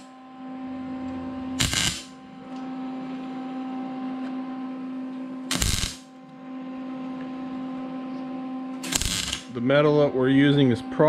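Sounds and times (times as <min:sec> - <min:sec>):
steady hum: 0:00.0 - 0:11.0
welding arc crackling: 0:01.6 - 0:02.2, 0:05.5 - 0:06.1, 0:08.8 - 0:09.5.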